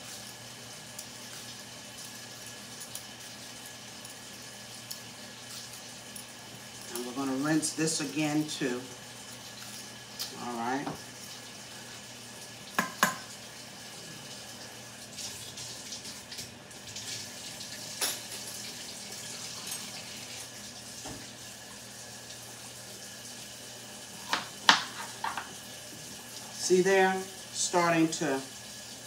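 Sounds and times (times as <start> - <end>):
utensils knocking against sink: 12.8 - 13.3.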